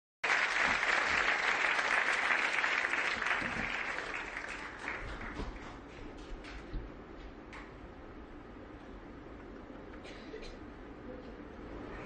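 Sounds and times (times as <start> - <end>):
studio audience applauding: 0.2 - 6.6.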